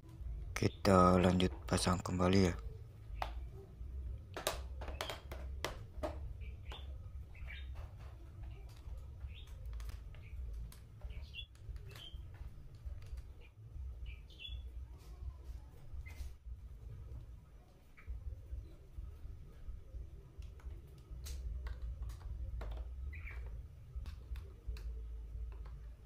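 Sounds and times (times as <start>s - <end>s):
bird chirps: 6.3s - 12.5s, 13.2s - 15.3s, 23.0s - 23.6s.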